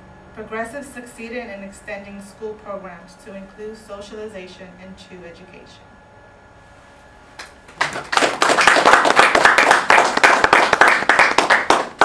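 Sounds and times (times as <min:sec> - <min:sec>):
audience applauding: 0:07.7 - 0:12.0.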